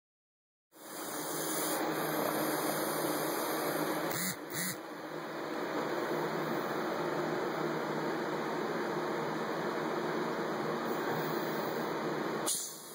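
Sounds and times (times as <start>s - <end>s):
snake hissing: 0.8s - 3.7s.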